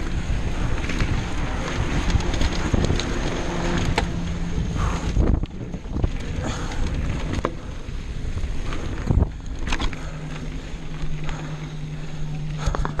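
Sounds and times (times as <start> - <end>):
bike rattling and clicking: 0.0 - 13.0
bike tyres rumbling on dirt: 0.0 - 13.0
steady low hum: 0.0 - 13.0
wind buffeting microphone: 0.0 - 13.0.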